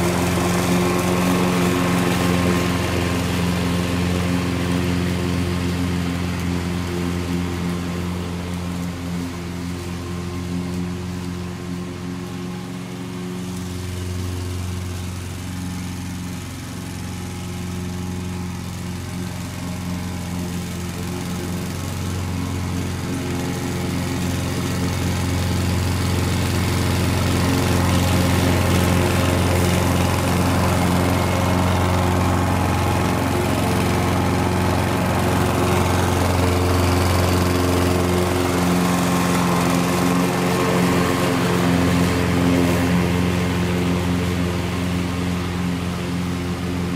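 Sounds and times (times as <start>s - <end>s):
lawn mower engine running: 0.0s - 46.9s.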